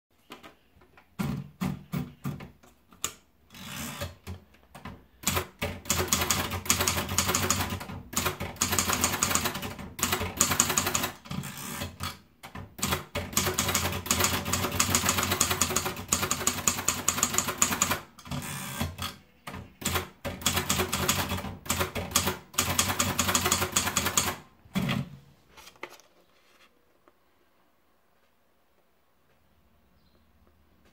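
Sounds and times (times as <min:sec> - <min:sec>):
typewriter carriage return: 0:03.0 - 0:25.1
typewriter paper rolling clicks: 0:05.2 - 0:19.2
typewriter keystrokes: 0:05.2 - 0:25.0.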